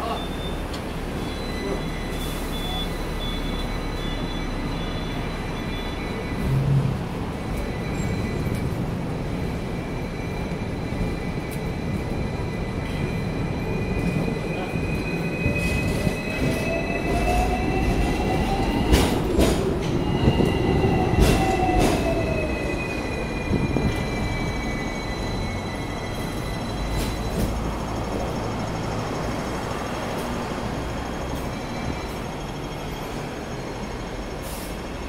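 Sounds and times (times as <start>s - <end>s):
high wheel squeal: 0.0s - 6.8s, 19.9s - 28.9s
tram running on rails: 0.0s - 35.0s
wheels clanking on track: 12.8s - 35.0s.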